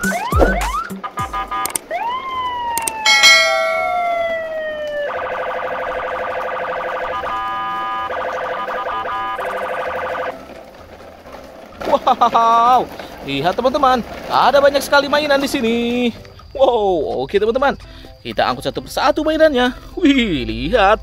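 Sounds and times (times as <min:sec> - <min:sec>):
long falling tone: 0:03.0 - 0:04.7
fast-pulsing alarm-like warble: 0:03.0 - 0:10.3.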